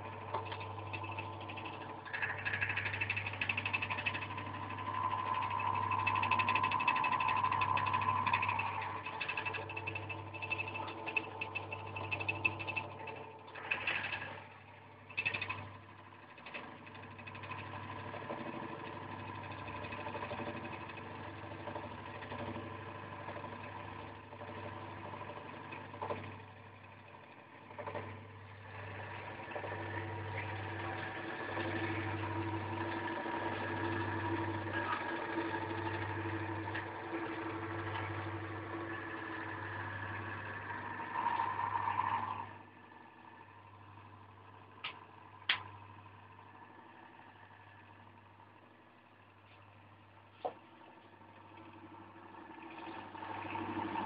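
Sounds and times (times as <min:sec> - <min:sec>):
electric motor humming: 0:00.0 - 0:42.6.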